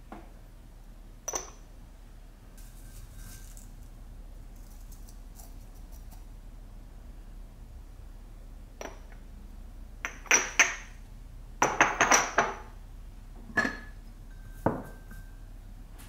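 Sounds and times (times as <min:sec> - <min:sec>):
stoneware jars clinking: 0:13.5 - 0:15.3.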